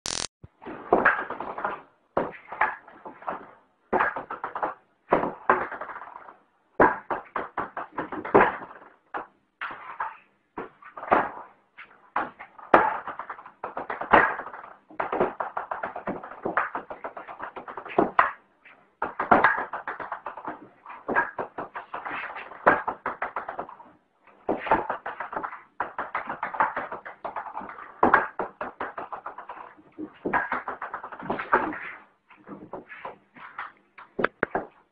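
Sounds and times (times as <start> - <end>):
table tennis ball bouncing: 24.4 - 32.0, 33.5 - 34.8.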